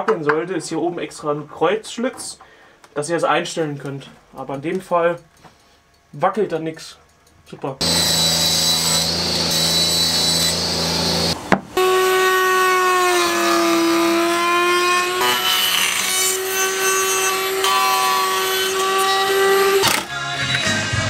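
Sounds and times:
table saw cutting wood: 7.8 - 20.7
wood router whining: 7.8 - 20.7.

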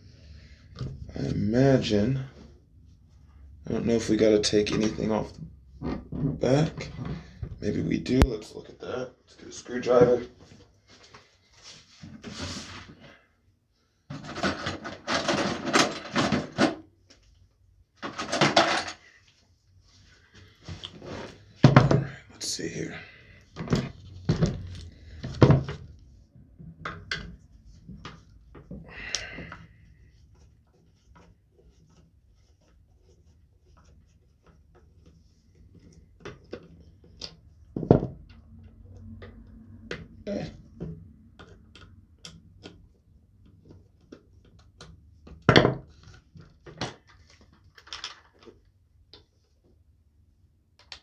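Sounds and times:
clicks and knocks of rifle parts: 18.0 - 19.1, 46.0 - 49.3.

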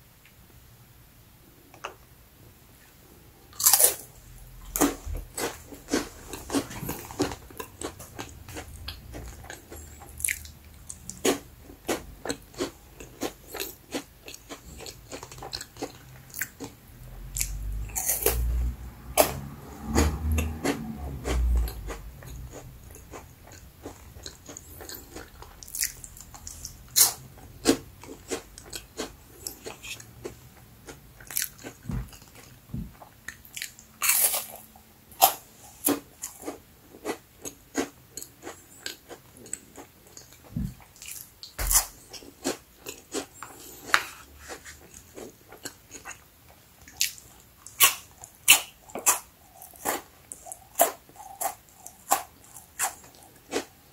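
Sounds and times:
crackers crunching: 3.5 - 18.5, 19.4 - 34.6.

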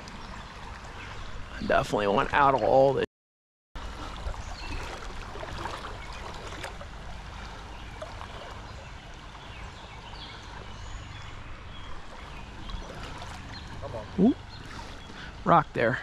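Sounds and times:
stream running over rocks: 3.8 - 16.0.

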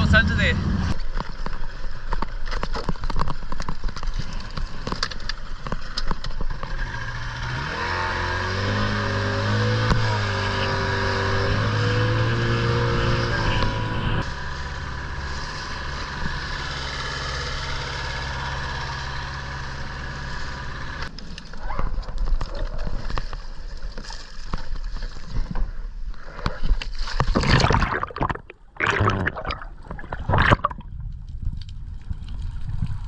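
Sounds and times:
outboard motor running: 0.6 - 21.1
splashing and bubbling water: 26.5 - 31.2
water slapping against boat: 26.8 - 30.9.

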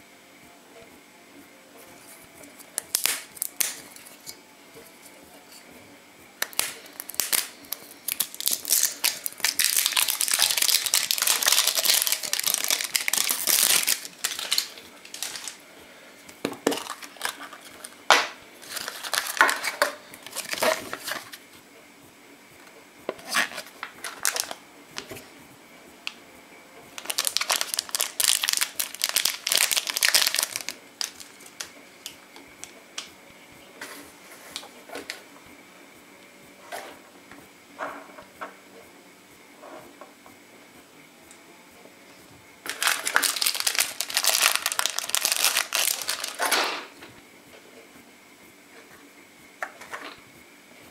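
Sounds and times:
plastic wrapper crinkling: 6.4 - 15.6, 16.6 - 18.0, 18.6 - 21.4, 23.2 - 25.1, 27.0 - 32.7, 42.6 - 46.5
plastic bag and paper handled: 6.9 - 15.6, 16.6 - 17.9, 18.6 - 21.4, 23.2 - 25.2, 27.0 - 32.7, 42.7 - 46.5.

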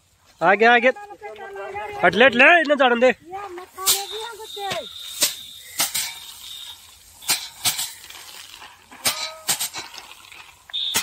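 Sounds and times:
rice stalks striking iron frame: 3.7 - 11.0.

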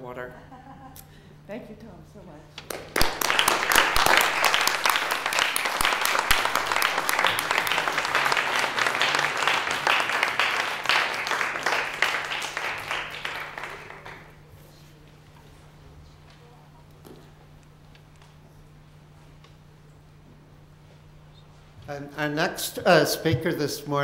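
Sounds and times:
audience applauding: 2.7 - 14.5.

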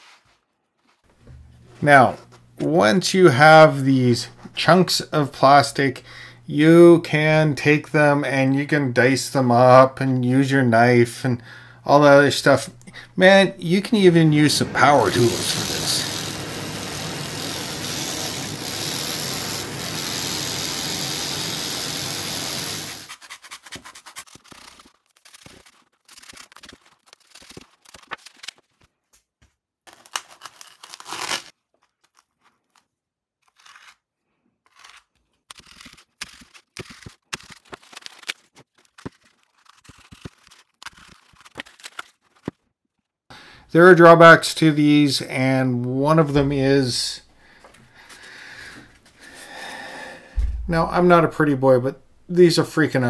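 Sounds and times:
blade crackling through foam: 13.7 - 28.1
power tool running: 14.4 - 23.1.

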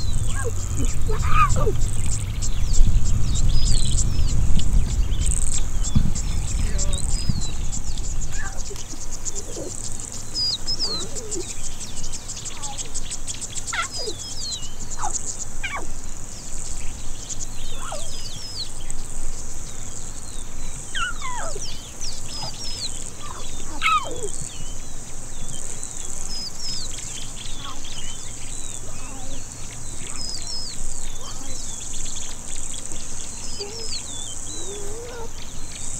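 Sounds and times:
lion cubs mewing: 0.0 - 4.4, 5.2 - 16.1, 17.6 - 18.4, 20.8 - 24.7, 27.5 - 35.5
bird chirps: 0.0 - 35.9
insects trilling: 0.0 - 35.9.

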